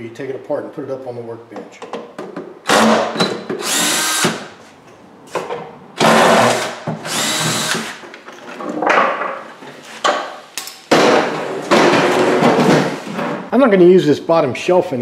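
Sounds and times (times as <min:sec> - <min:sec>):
cordless drill running: 0:03.6 - 0:04.5, 0:06.0 - 0:08.0.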